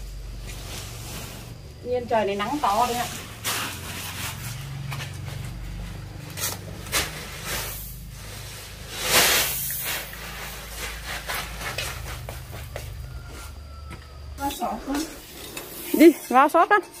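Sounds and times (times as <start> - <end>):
plastic sacks rustling: 0.0 - 13.8
rice rushing onto concrete: 6.4 - 13.3.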